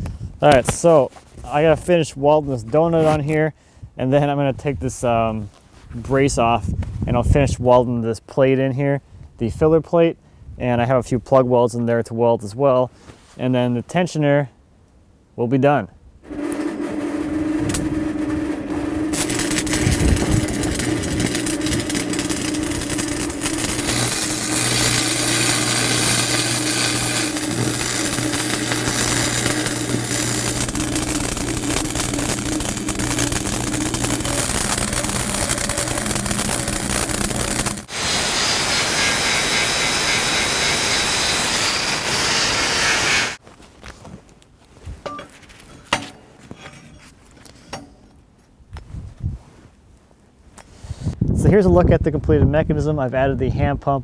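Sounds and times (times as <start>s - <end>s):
welding arc crackling: 16.2s - 43.4s.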